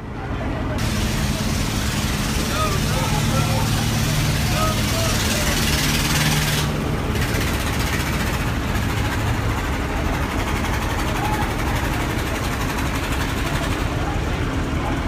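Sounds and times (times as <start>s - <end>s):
ferry engines rumbling: 0.0s - 15.0s
water churning: 0.8s - 15.0s.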